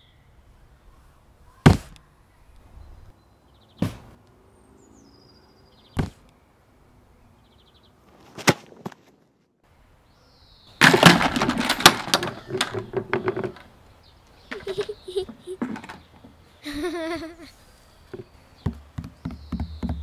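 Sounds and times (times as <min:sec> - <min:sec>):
sharp single knocks: 0:03.8 - 0:04.2, 0:06.0 - 0:06.2.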